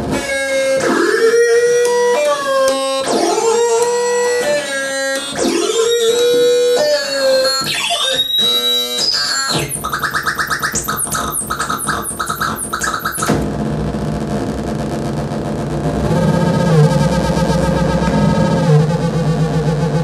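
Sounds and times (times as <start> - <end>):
electronic synth tones: 5.4 - 13.4
buzzing synth drone: 5.4 - 20.0
falling electronic chirps: 7.0 - 13.4.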